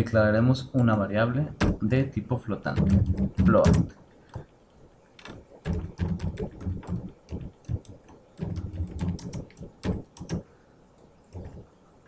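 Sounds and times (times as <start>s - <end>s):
typing on computer keyboard: 2.7s - 3.9s, 5.2s - 10.4s, 11.3s - 11.6s.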